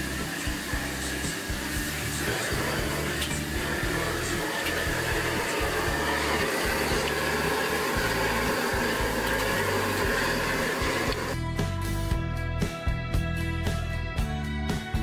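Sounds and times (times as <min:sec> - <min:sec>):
gas burner rushing: 0:00.0 - 0:11.4
background music: 0:00.0 - 0:15.0.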